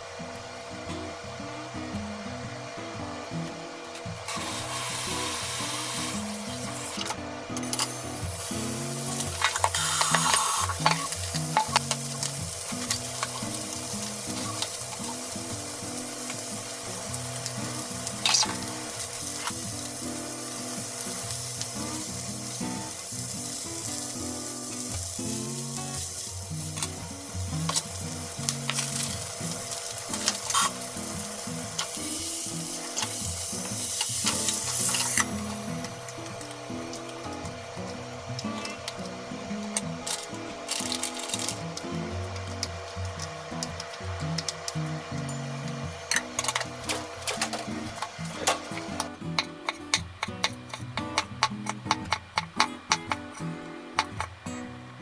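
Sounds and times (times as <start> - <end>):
meat sizzling in oil: 4.3 - 7.0, 7.7 - 39.2.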